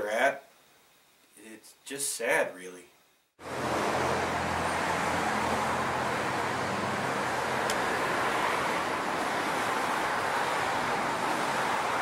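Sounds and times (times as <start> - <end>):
street traffic: 3.4 - 12.0
vehicle engine humming: 3.4 - 12.0.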